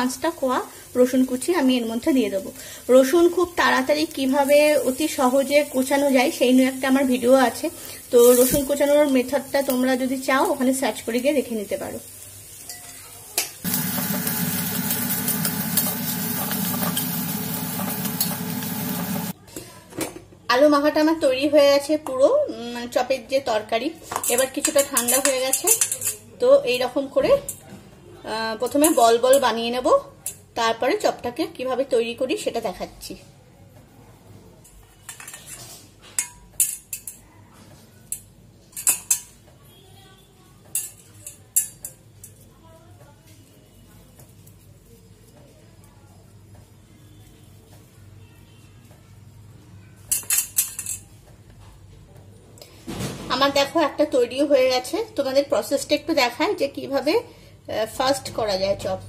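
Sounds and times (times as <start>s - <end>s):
food sizzling in a wok: 0.0s - 19.4s
spatula scraping a wok: 12.1s - 19.4s
steel bowl clinking: 12.6s - 19.3s.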